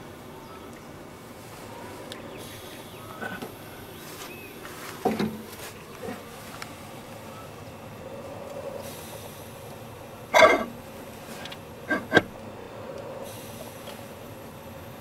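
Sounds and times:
steady background hiss: 0.0s - 15.0s
metal clunks: 5.0s - 6.2s, 10.4s - 10.8s, 11.4s - 12.4s.

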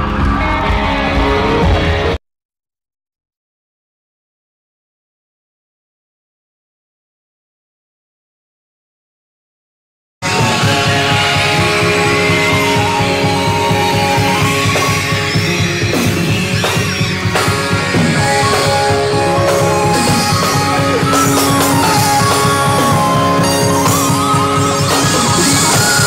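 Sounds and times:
rock music with guitar: 0.0s - 2.2s, 10.2s - 26.0s.

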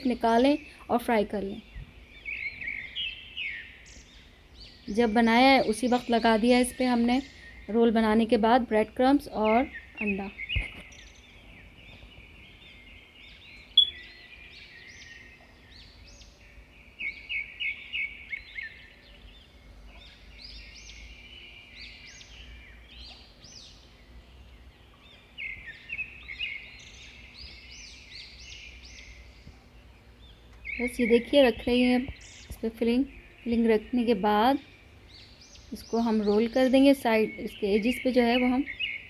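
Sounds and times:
small birds chirping: 0.0s - 39.0s.

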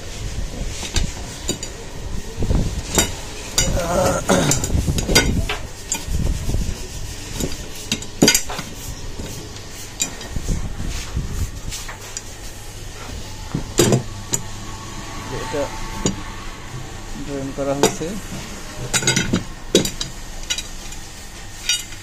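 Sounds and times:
metal brackets clinking: 2.8s - 6.1s, 18.8s - 22.0s.

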